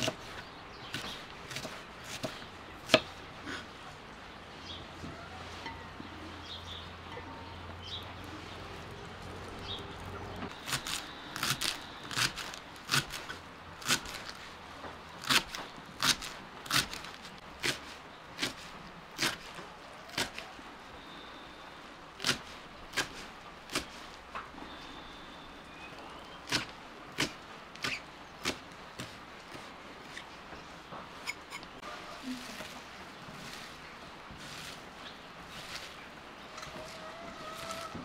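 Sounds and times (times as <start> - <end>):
knife chopping on wooden board: 0.9 - 3.1
faint bird chirps: 20.8 - 21.9, 24.6 - 26.6.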